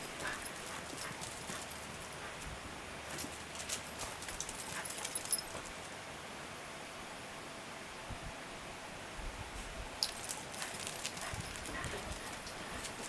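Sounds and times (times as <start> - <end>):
dog claws tapping on concrete: 10.0 - 13.0.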